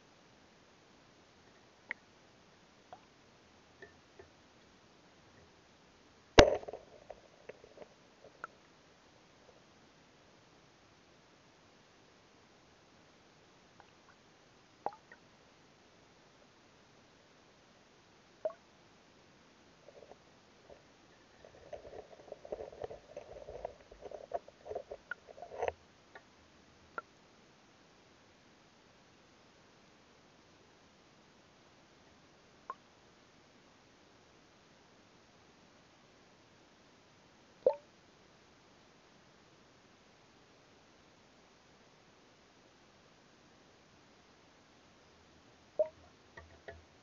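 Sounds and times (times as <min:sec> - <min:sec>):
muffled tapping and crackling: 0:06.4 - 0:08.5, 0:19.9 - 0:26.3, 0:45.8 - 0:46.9.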